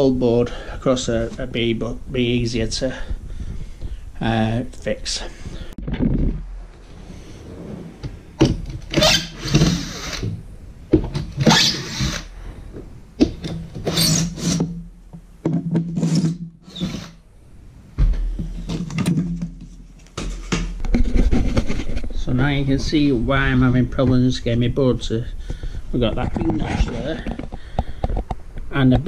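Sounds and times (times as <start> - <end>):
wooden boards knocking and scraping: 15.4 - 16.4, 18.0 - 22.1.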